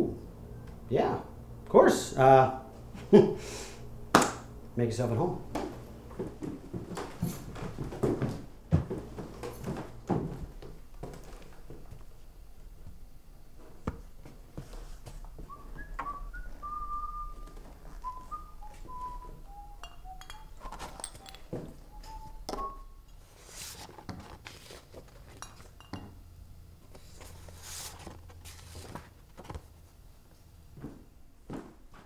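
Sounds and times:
person whistling a tune: 15.5 - 23.0
clinks and knocks: 19.8 - 21.8.

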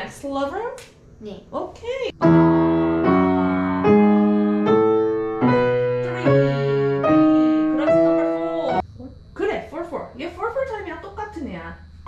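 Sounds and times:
piano chords: 2.2 - 8.8.

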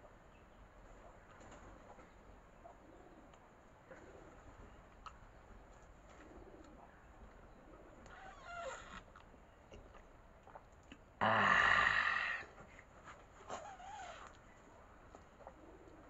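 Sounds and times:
dove cooing: 2.6 - 4.8, 6.1 - 8.2, 15.4 - 16.0.

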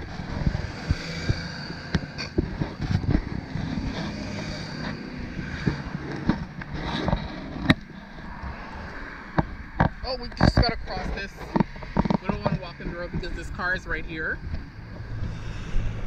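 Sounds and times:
road traffic rumble: 0.0 - 16.0
sharp knocks and clicks: 0.3 - 7.9, 9.3 - 13.3.

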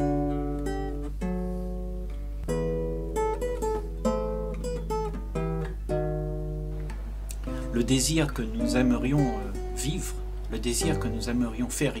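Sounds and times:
acoustic guitar playing: 0.0 - 12.0
steady low hum: 0.0 - 12.0.

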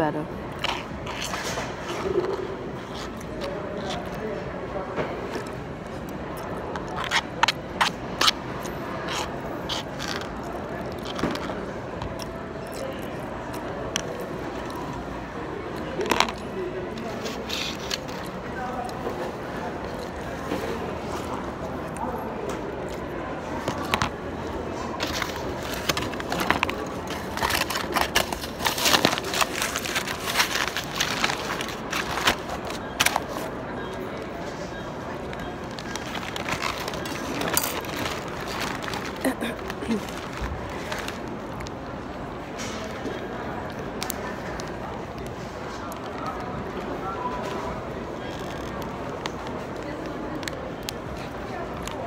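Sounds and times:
aluminium foil crinkling: 25.0 - 33.5, 35.6 - 41.6
plastic spoon scraping container: 25.0 - 33.5.

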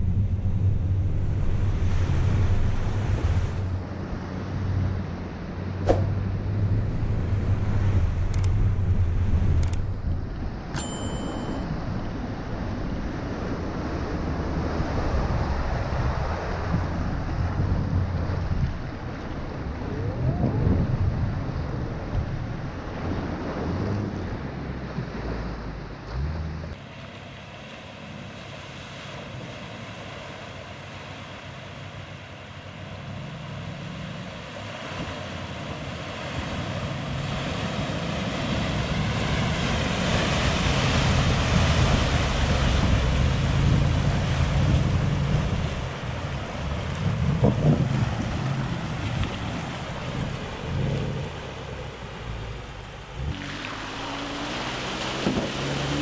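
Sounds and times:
water churning and spraying: 13.2 - 56.0
low car engine: 42.0 - 56.0.

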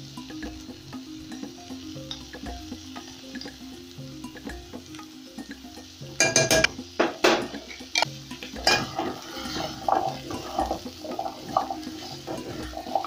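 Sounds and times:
squash frying in oil: 0.0 - 13.0
spatula knocking against pot: 6.2 - 7.8, 8.5 - 9.2.

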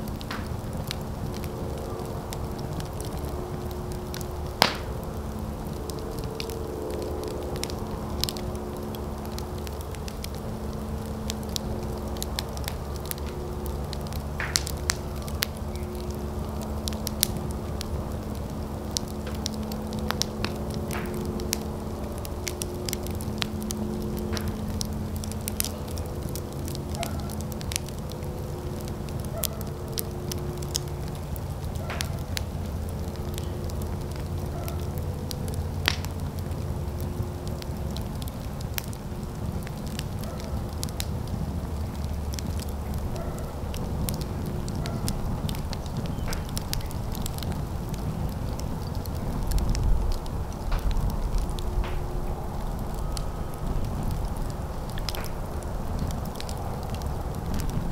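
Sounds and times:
fire crackling and popping: 0.0 - 57.9.

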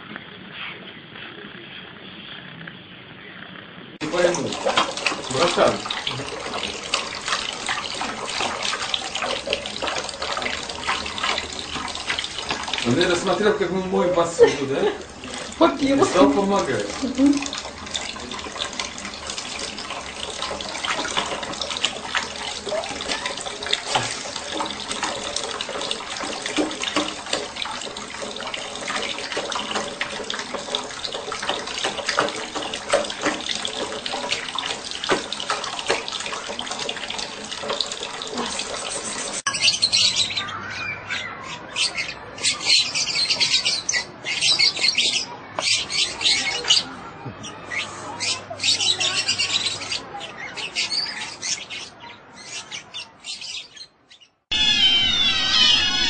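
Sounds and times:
tap water running into bowl: 4.0 - 40.2.

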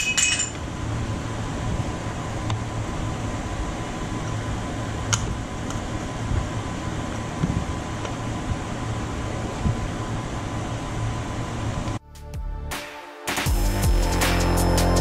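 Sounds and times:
fan-like whirring hum: 0.0 - 12.0.

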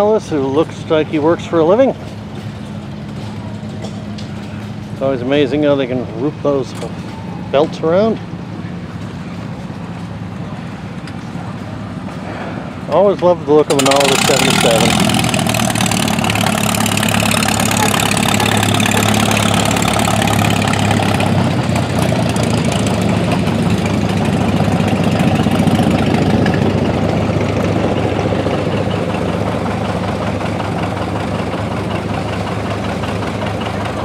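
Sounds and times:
engine idling: 13.0 - 34.0.

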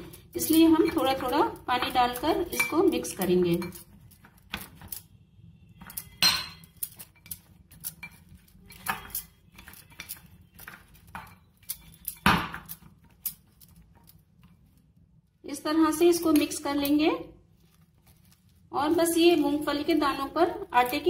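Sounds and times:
spoon scraping glass bowl: 0.4 - 5.0, 5.8 - 14.0.

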